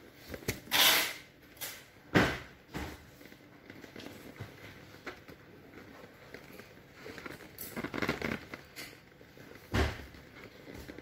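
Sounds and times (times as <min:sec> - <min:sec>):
vinyl rustling and hissing: 0:00.0 - 0:11.0.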